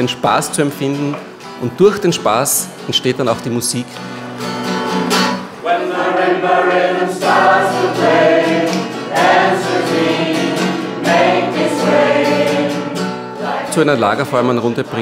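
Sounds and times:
acoustic guitar: 0.0s - 15.0s
group of people singing: 5.6s - 14.0s.

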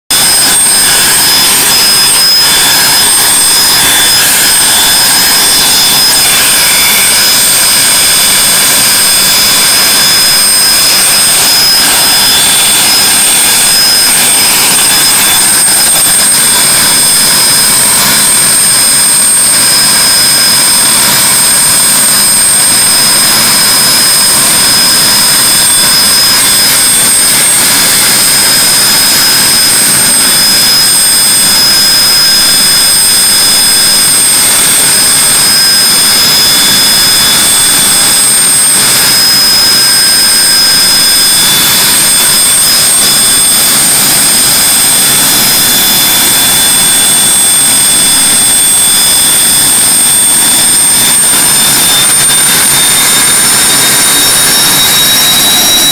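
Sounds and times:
helicopter turbine whine: 0.1s - 55.9s.

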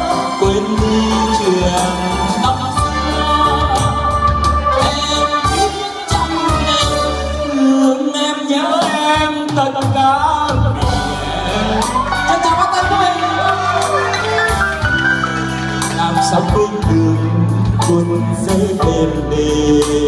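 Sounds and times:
electronic keyboard accompaniment: 0.0s - 20.0s
saxophone melody: 10.8s - 17.7s.

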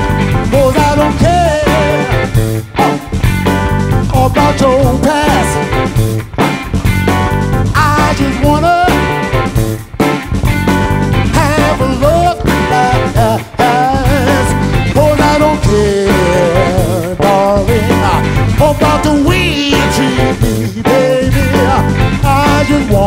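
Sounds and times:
funk band playing: 0.0s - 23.0s.

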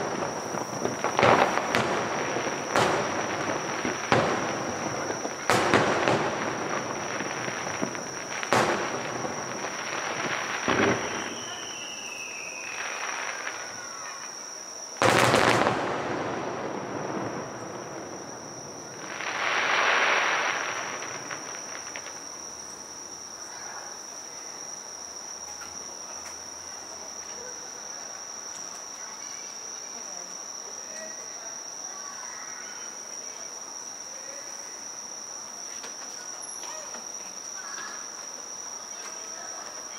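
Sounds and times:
firework boom: 0.0s - 11.8s, 15.0s - 22.2s
crickets trilling: 0.0s - 39.9s.

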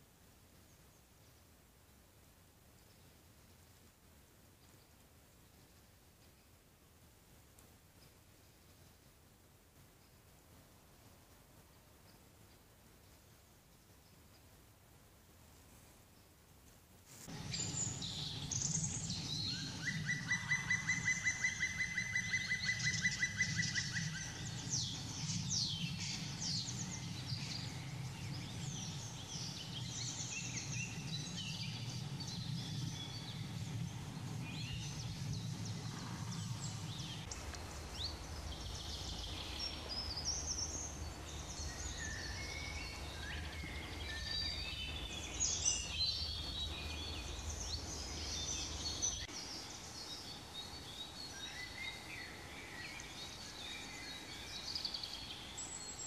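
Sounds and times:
low background rumble: 17.2s - 56.0s
birds calling and singing: 17.3s - 56.0s
fast bird trill: 17.4s - 33.6s.

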